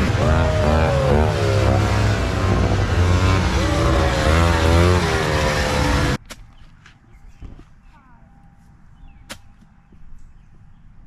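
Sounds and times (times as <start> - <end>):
snowmobile engines at high revs: 0.0 - 6.2.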